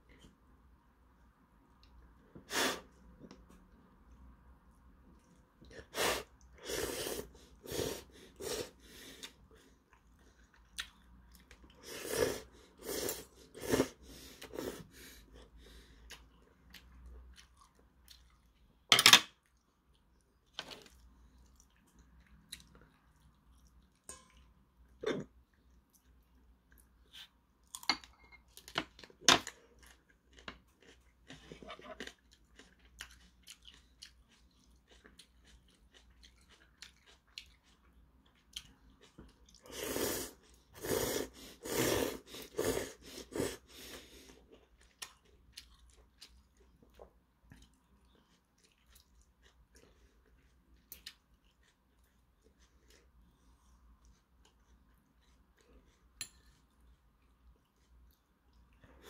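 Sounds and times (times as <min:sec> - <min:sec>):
person slurping noodles: 0:05.9 - 0:09.0, 0:11.8 - 0:14.9, 0:39.7 - 0:44.0.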